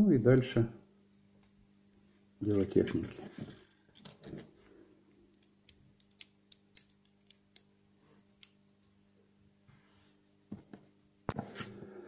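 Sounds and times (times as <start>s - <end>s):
faint steady hum: 0.0s - 12.0s
small plastic parts clicking: 5.3s - 7.7s.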